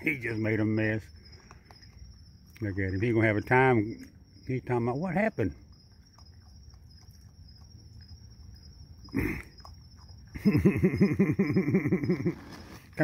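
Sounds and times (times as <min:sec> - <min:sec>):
raccoon growling: 0:04.9 - 0:12.8.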